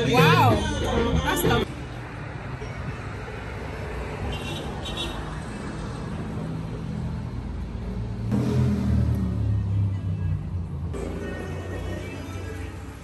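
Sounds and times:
music: 0.0s - 1.7s, 11.0s - 13.0s
road traffic rumble: 0.0s - 13.0s.

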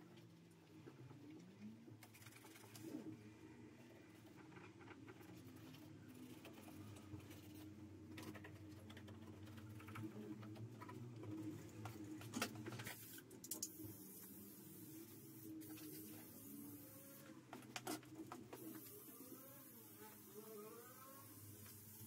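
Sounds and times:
aerosol spray hiss: 13.0s - 17.2s.

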